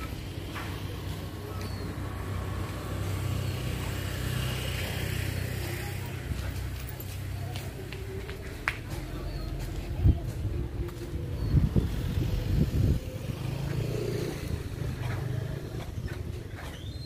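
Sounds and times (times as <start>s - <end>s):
engine running: 10.4s - 16.8s.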